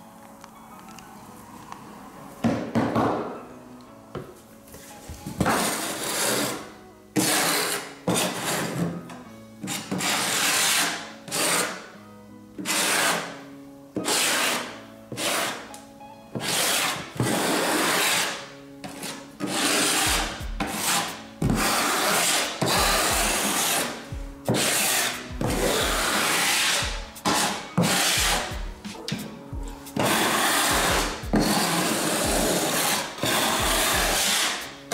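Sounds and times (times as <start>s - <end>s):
trowel scraping adhesive: 5.4s - 9.0s, 9.6s - 11.9s, 12.6s - 13.4s, 14.0s - 15.7s, 16.4s - 28.6s, 30.0s - 34.7s.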